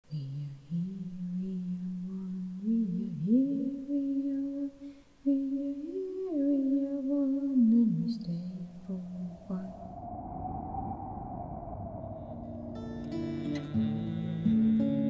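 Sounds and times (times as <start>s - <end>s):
person humming slow melody: 0.1s - 9.8s, 13.0s - 15.0s.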